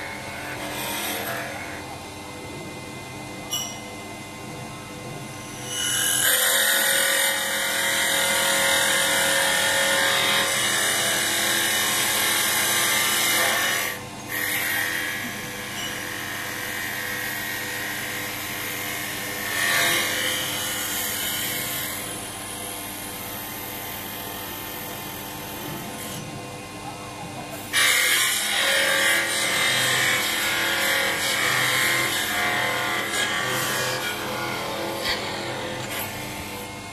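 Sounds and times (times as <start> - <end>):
cutting tool shaving wood: 27.6 - 36.7.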